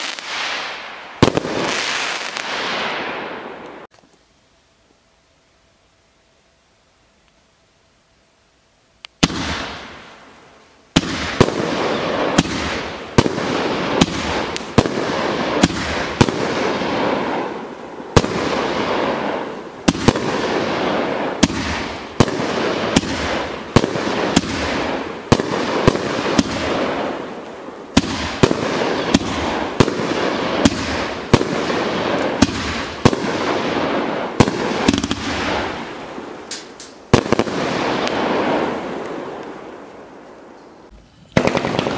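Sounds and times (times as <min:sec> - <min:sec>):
fireworks crackling hiss: 0:00.0 - 0:41.9
fireworks cake reports: 0:40.9 - 0:41.9.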